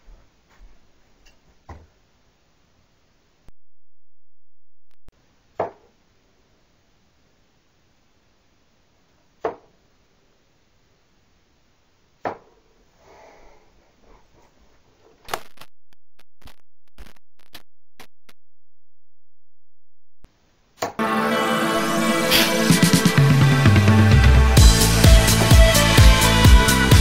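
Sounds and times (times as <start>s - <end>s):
electronic music: 21.0s - 27.0s.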